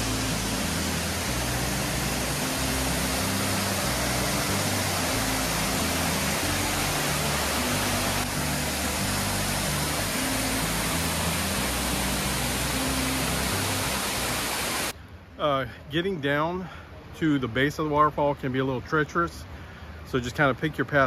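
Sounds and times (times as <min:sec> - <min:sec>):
waterfall rushing: 0:00.0 - 0:14.9
background music low notes: 0:00.0 - 0:15.6.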